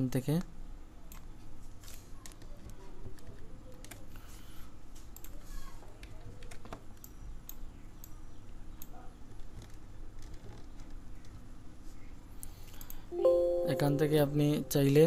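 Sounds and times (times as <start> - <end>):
computer keyboard clicks: 5.1 - 5.4, 6.0 - 8.2.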